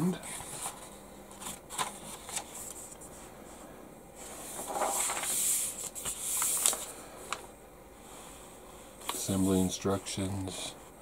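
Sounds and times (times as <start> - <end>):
paper rustling and crinkling: 0.3 - 3.0, 4.4 - 7.4, 9.0 - 9.6.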